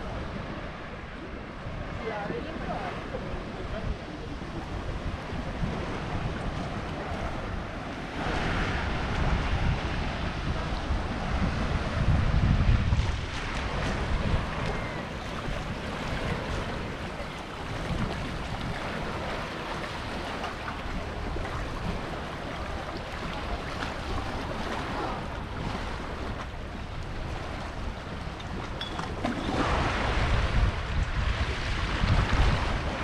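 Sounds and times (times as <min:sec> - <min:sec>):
wind buffeting microphone: 0:00.0 - 0:33.0
waves washing onto pebble beach: 0:05.6 - 0:12.1.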